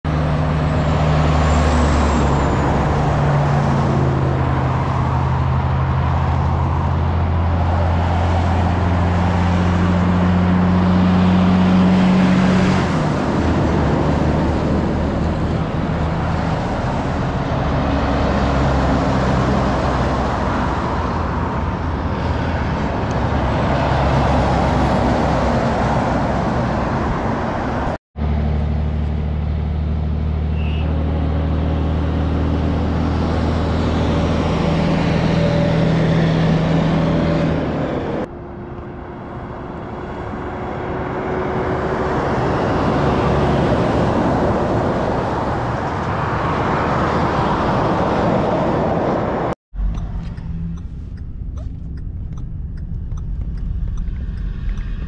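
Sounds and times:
diesel truck engine drone: 0:00.0 - 0:55.0.

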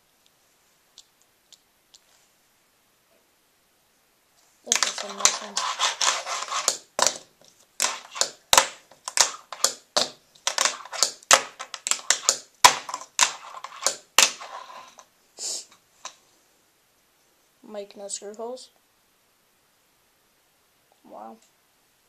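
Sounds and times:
wheels rolling scrapes: 0:04.7 - 0:07.2, 0:10.4 - 0:15.1
sharp wooden clacks: 0:04.7 - 0:15.0.

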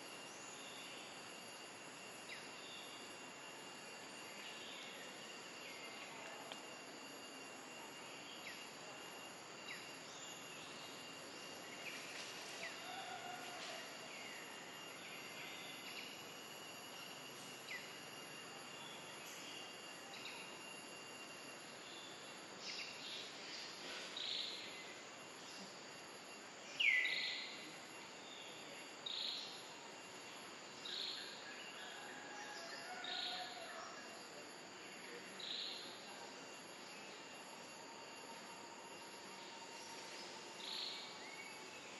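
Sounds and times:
insect hiss: 0:00.0 - 0:41.9.

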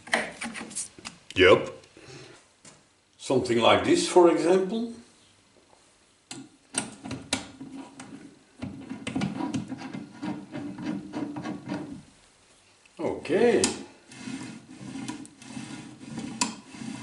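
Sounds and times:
metal threads scraping: 0:08.8 - 0:12.0, 0:14.1 - 0:17.0.

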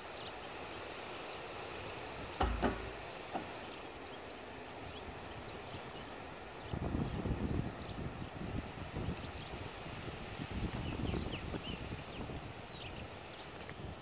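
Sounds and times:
plastic barrel hollow knocks: 0:02.4 - 0:03.6.

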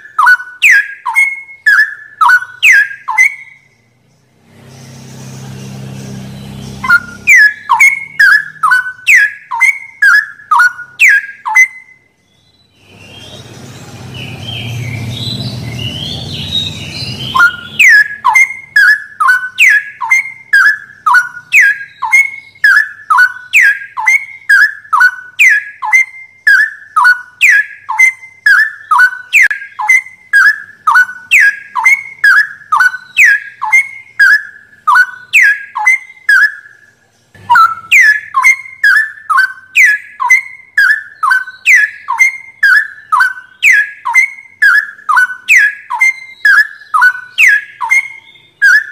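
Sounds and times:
bird whistling sharp notes: 0:00.0 - 0:03.8, 0:04.4 - 0:36.9, 0:37.5 - 0:48.9
faint chirps: 0:00.0 - 0:48.9
low rumbling noise: 0:12.8 - 0:17.8.

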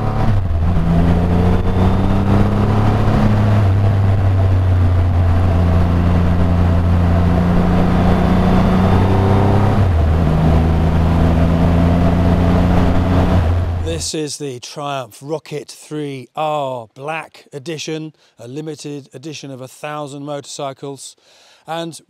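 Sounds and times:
motorcycle engine running: 0:00.0 - 0:13.9
wind rush over microphone: 0:00.0 - 0:13.9.

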